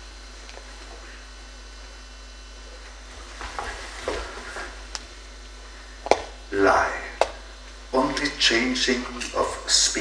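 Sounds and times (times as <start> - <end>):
room hiss: 0.0 - 10.0
shoes scuffing on wooden floor: 3.1 - 4.8.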